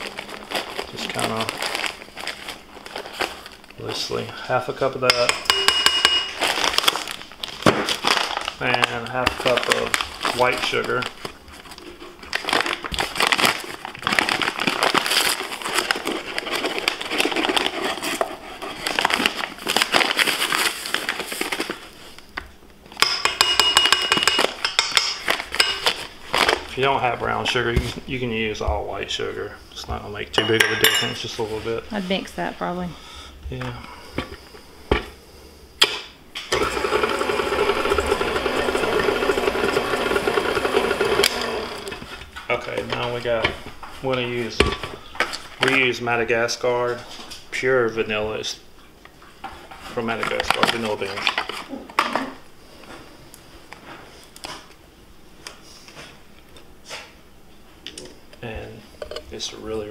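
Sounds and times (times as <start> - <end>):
paper bag crinkling: 0.0 - 4.3, 6.3 - 22.3
stand mixer running: 36.5 - 42.1.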